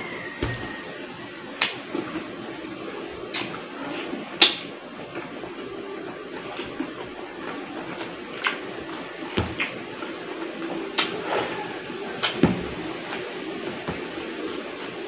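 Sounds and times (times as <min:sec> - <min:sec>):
chewing and wet lip smacks: 0:11.0 - 0:11.2.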